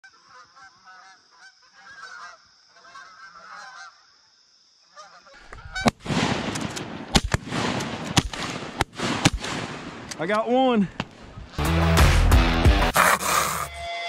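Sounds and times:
geese honking: 0.0s - 4.0s, 4.9s - 6.0s
loud sharp crack: 5.8s - 10.4s.

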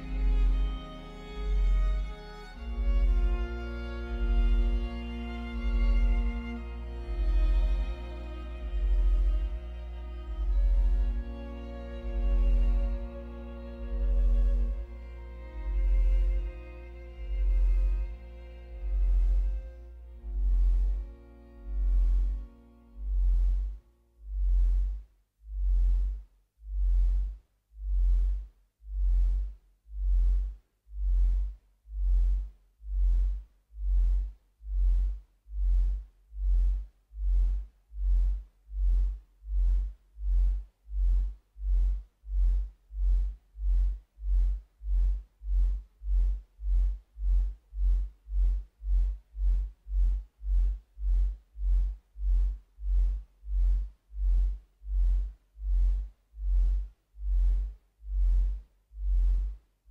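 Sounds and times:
deep electronic bass pulse: 0.0s - 59.6s.

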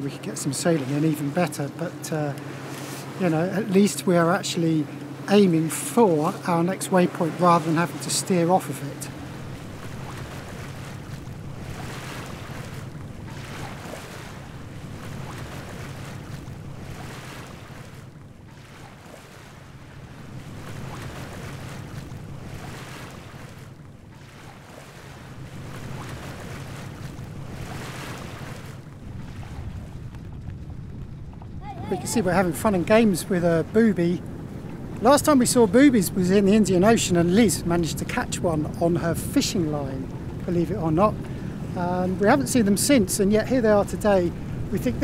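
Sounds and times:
boat engine droning: 0.0s - 45.0s
water rushing along hull: 0.0s - 45.0s
wind on microphone: 25.2s - 38.8s.

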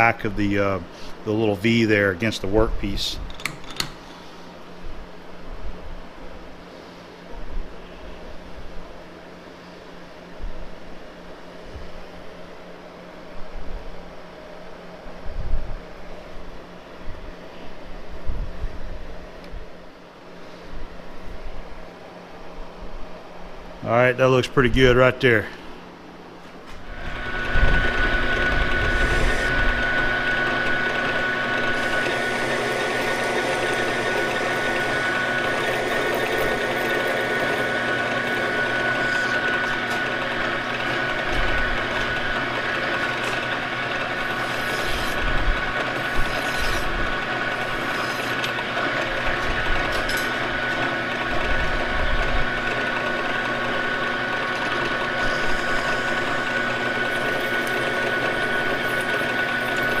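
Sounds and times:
lathe running with high whine: 26.8s - 60.0s
file scraping metal shaft: 27.0s - 51.4s, 52.4s - 60.0s.

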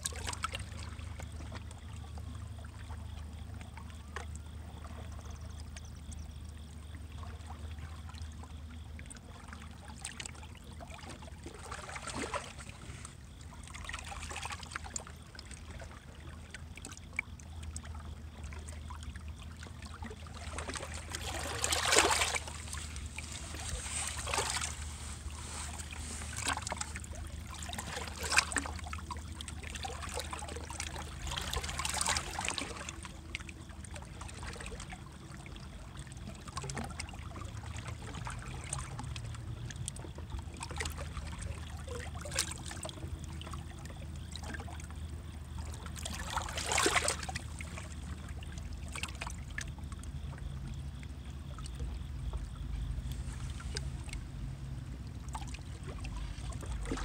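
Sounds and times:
low hum: 17.4s - 31.6s
water splashing against rocks: 20.2s - 33.1s, 45.9s - 48.0s.

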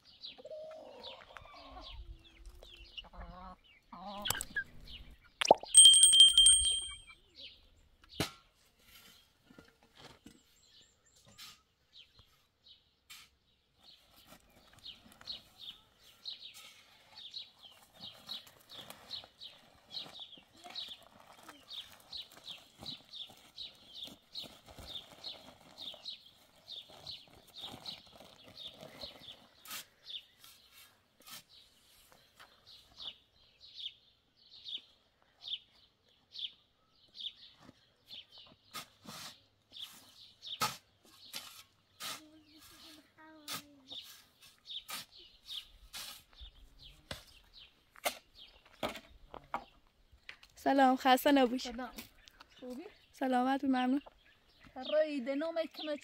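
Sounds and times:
bird chirping: 3.6s - 7.7s.

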